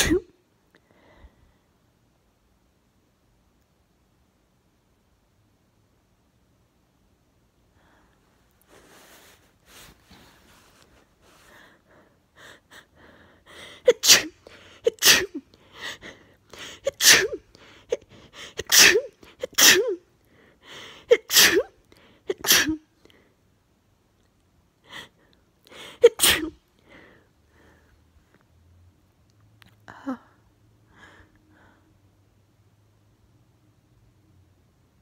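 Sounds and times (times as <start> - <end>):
person sneezing: 0.0 - 0.3, 13.7 - 15.5, 16.6 - 20.0, 21.1 - 22.9, 25.8 - 26.6.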